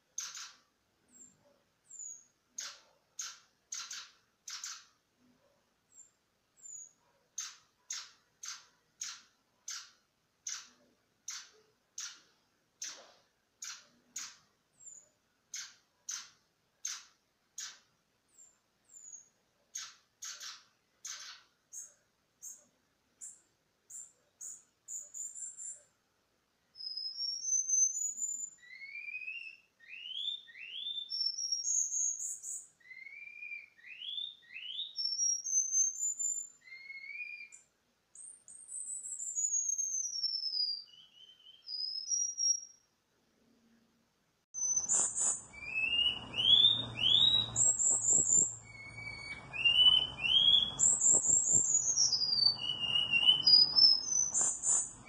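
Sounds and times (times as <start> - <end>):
bird whistling song: 0.2 - 1.3, 1.9 - 4.9, 5.9 - 9.9, 18.4 - 22.6, 26.8 - 42.8, 44.6 - 55.0.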